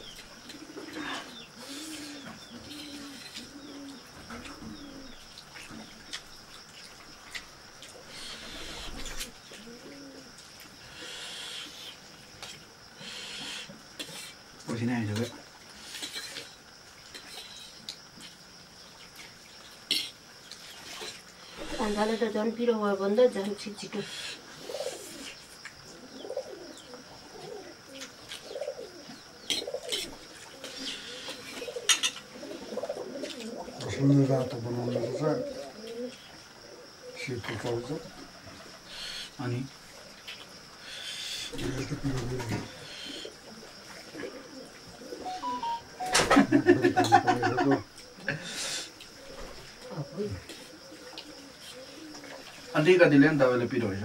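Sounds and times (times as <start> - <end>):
dove cooing: 0.0 - 5.3, 8.0 - 11.8, 21.4 - 22.4, 24.0 - 33.9, 34.9 - 39.4, 40.9 - 53.0.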